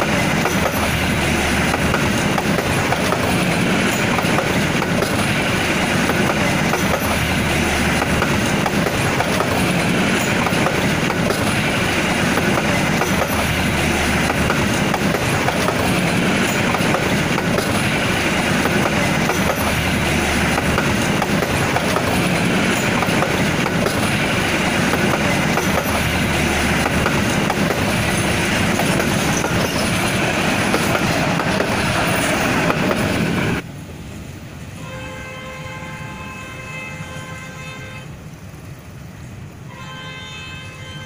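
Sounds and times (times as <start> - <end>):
train wheels rushing on rail: 0.0 - 41.0
distant train horn blasts: 34.7 - 38.3, 39.6 - 41.0.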